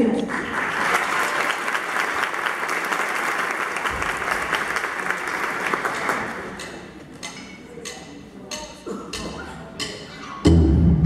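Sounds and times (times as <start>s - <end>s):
audience applause: 0.3s - 6.6s.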